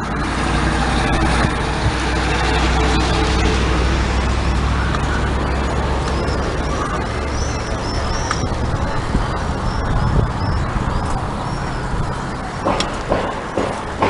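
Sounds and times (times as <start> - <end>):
road traffic rumble: 0.0 - 14.0
high chirps: 3.0 - 12.3.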